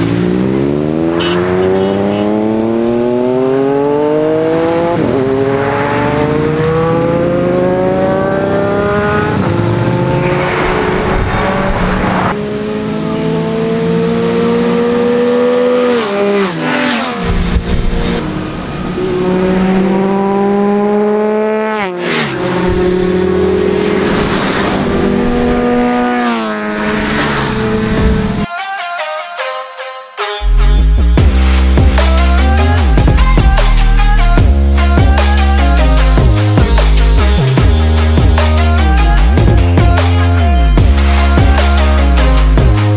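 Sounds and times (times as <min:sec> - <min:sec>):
motorcycle engines accelerating past: 0:00.0 - 0:28.5.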